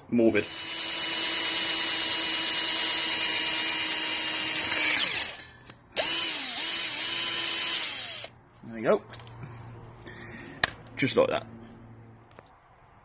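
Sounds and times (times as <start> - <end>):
electric drill boring sheet steel: 0.3 - 8.3.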